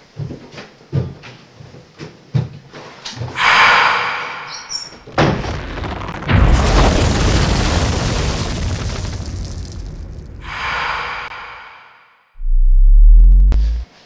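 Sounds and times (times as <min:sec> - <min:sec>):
loud hissing rush: 0:03.4 - 0:05.2, 0:10.4 - 0:12.2
heavy low rumble: 0:10.4 - 0:14.0.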